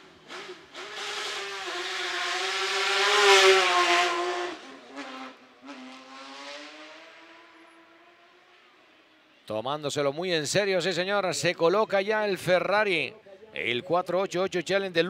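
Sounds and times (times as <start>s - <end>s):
rally car engine accelerating: 0.0s - 8.4s.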